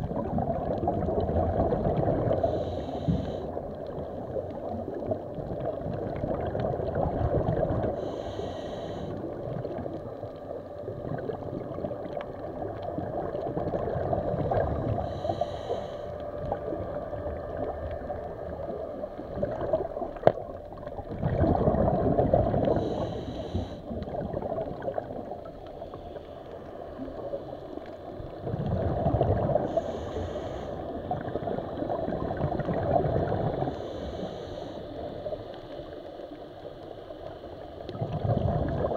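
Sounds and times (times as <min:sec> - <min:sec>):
gurgling exhaled bubbles: 0:00.0 - 0:08.2, 0:09.0 - 0:15.5, 0:16.4 - 0:25.8, 0:26.8 - 0:34.3, 0:37.8 - 0:38.9
regulator inhale hiss: 0:02.3 - 0:04.0, 0:07.8 - 0:10.0, 0:14.8 - 0:16.6, 0:22.6 - 0:24.1, 0:25.7 - 0:28.3, 0:29.5 - 0:31.8, 0:33.4 - 0:37.8.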